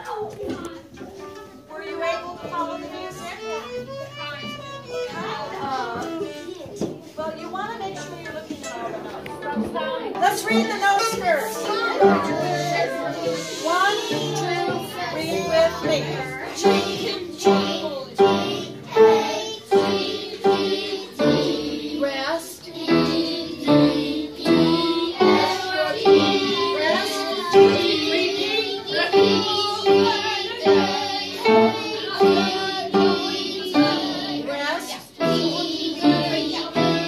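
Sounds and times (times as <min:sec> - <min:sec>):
piano chords: 0:08.0 - 0:34.5, 0:35.2 - 0:37.0
children singing: 0:08.7 - 0:37.0.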